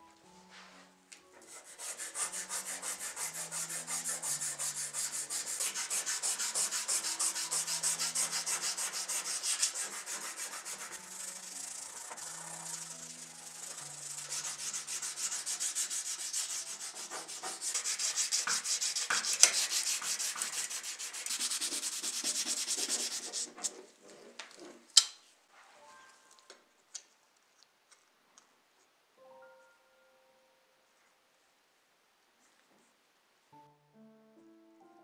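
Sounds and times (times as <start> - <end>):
sandpaper rubbing on metal: 1.5 - 23.9.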